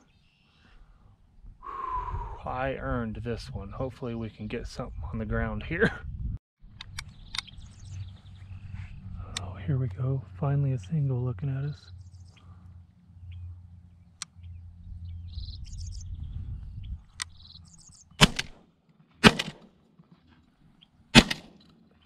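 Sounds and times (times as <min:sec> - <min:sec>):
low rumble: 0:05.0 - 0:17.5
small birds chirping: 0:06.8 - 0:09.7, 0:11.6 - 0:18.2
shotgun shots: 0:18.2 - 0:18.6, 0:19.2 - 0:19.7, 0:21.1 - 0:21.6.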